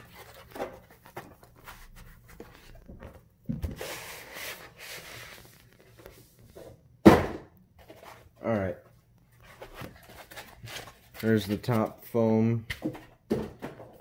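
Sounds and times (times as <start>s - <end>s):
cardboard rustling and sliding: 0.0s - 6.8s
cardboard thump: 7.0s - 7.5s.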